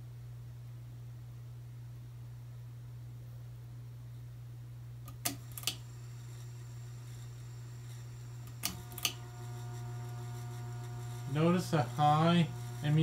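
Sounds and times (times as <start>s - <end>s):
fan motor humming: 5.1s - 13.0s.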